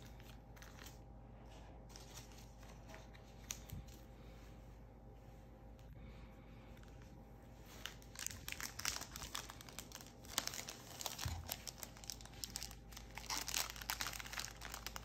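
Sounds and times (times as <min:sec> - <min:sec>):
foil wrapper crinkling: 0:07.7 - 0:15.0.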